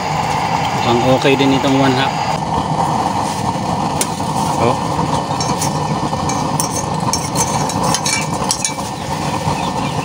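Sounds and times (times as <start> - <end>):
forced-air burner roaring: 0.0 - 10.0
small clinks and crackles: 5.4 - 8.9.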